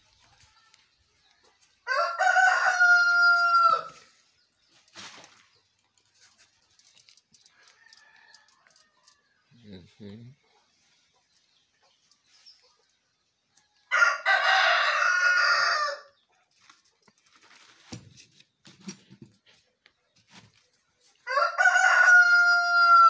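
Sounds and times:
rooster crowing: 1.8 - 4.0, 13.9 - 16.1, 21.2 - 23.0.

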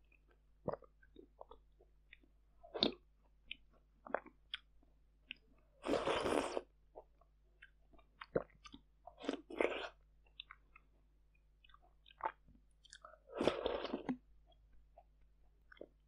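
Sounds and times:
wet mouth clicks and chewing: 0.1 - 6.0, 7.0 - 16.0
slurping: 5.8 - 6.7, 13.0 - 14.2.

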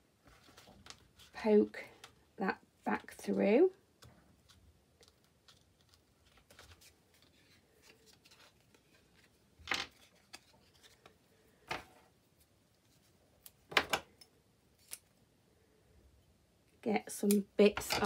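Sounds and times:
paper and card rustling: 0.2 - 2.2, 4.3 - 11.8.

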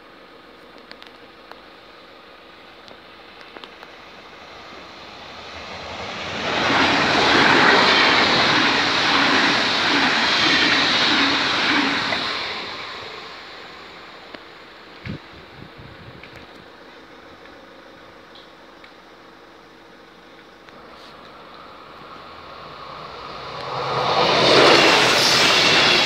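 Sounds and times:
train wheels on rails: 0.2 - 26.0.

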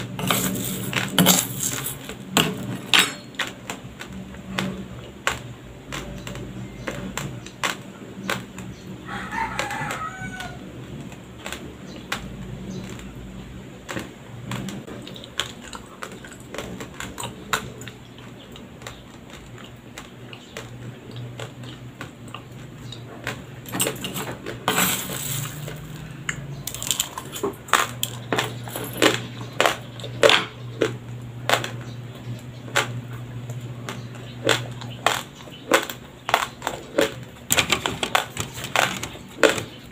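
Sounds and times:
chewing dry rice crunches: 0.0 - 39.9
rustling scrape: 0.1 - 2.8, 23.8 - 26.0
rooster crowing: 9.0 - 10.7.

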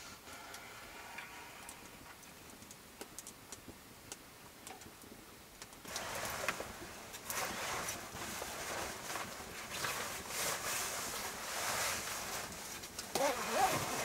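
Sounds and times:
sleeping bag rustling: 5.9 - 14.0.

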